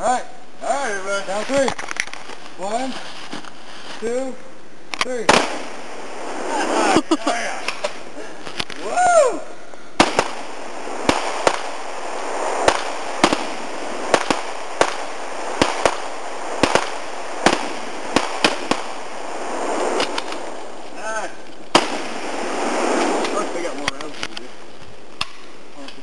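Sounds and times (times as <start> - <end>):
sharp cracks: 4.9 - 6.7, 7.5 - 9.0, 10.0 - 26.0.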